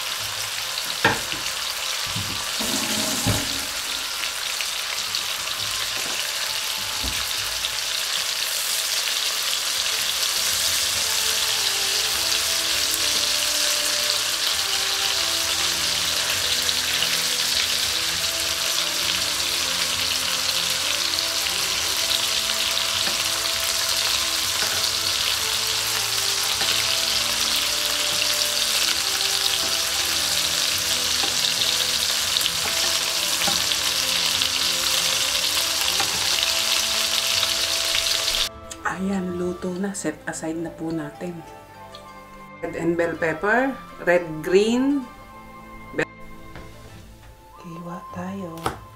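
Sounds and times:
meat sizzling in a pan: 0.0s - 38.5s
tongs turning meat: 15.0s - 38.4s.

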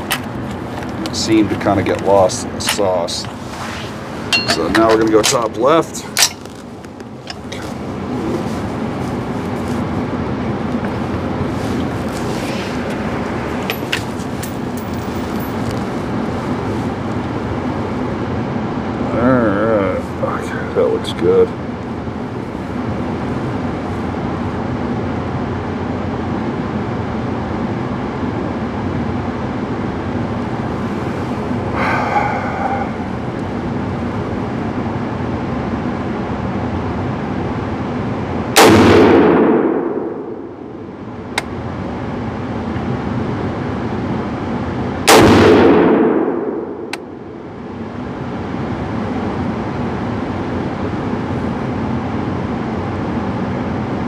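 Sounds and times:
steady background hum: 0.0s - 54.0s
brass casing tinking on floor: 4.3s - 5.0s
rifle shots echoing indoors: 38.6s - 40.5s, 45.1s - 47.0s.

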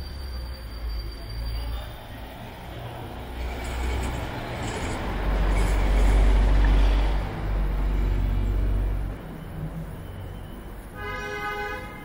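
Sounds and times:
vehicle passing: 1.7s - 11.0s.

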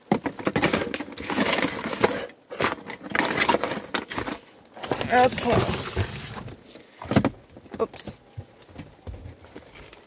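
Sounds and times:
cardboard box rustling and scraping: 0.5s - 6.8s.

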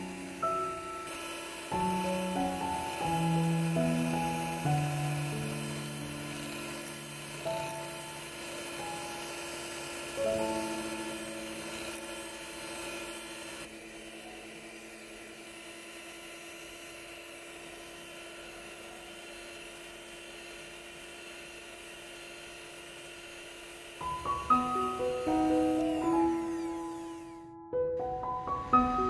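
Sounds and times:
piano music: 0.0s - 14.5s, 24.0s - 29.0s
electric hand mixer whine: 0.0s - 29.0s.

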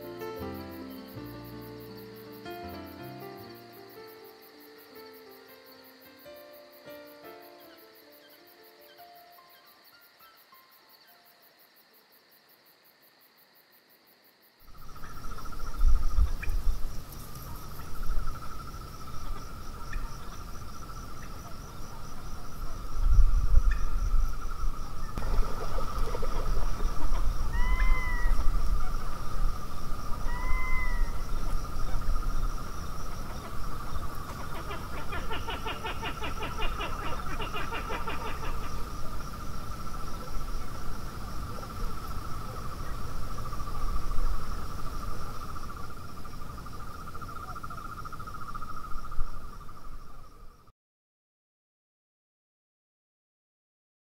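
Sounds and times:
crickets chirring: 0.0s - 50.7s
rising and falling calls: 27.4s - 28.5s, 30.2s - 31.3s.

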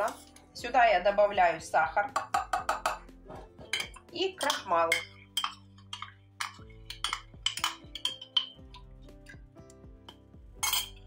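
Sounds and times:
metal spoon scraping ceramic mug: 0.0s - 0.5s
soft background music: 0.0s - 11.0s.

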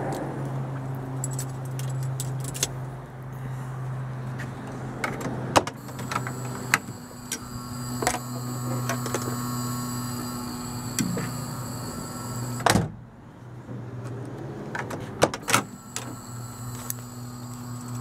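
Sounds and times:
relay click: 5.8s - 12.7s
car door warning buzzer: 5.8s - 12.9s, 15.4s - 18.0s.

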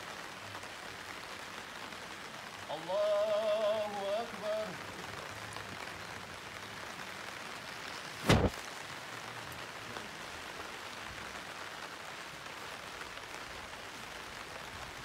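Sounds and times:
outdoor hiss: 0.0s - 15.0s
loud thump: 8.2s - 8.6s.

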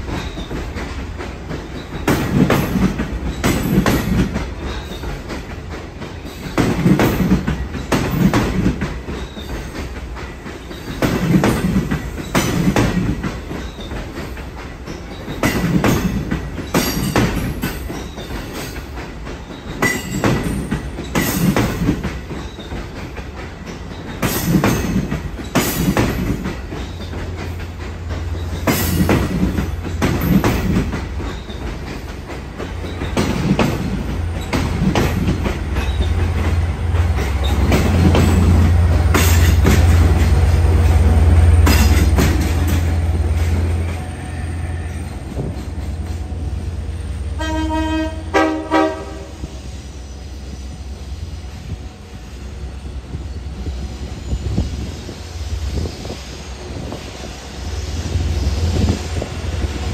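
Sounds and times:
train wheels clacking over joints: 0.0s - 52.3s
deep train rumble: 0.0s - 59.9s
locomotive horn blasts: 47.3s - 49.6s.

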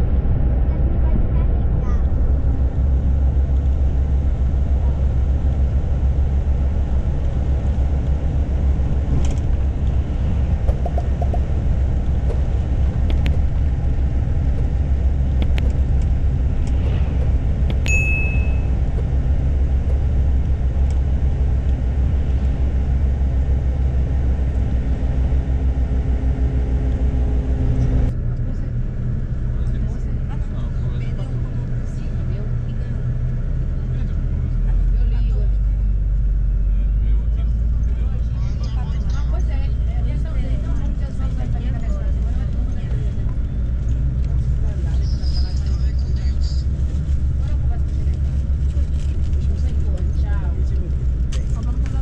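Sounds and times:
bus engine and road rumble: 0.0s - 52.0s
brief high beep: 17.9s - 18.7s.

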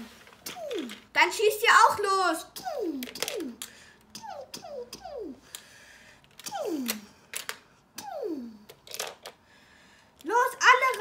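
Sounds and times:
plastic toy pieces clicking: 3.0s - 3.8s, 5.5s - 7.6s, 8.7s - 9.4s, 10.2s - 11.0s.

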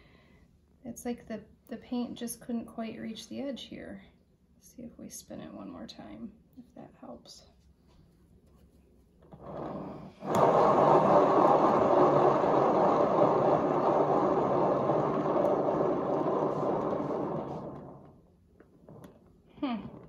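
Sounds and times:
paint turntable rumbling: 9.2s - 20.0s.

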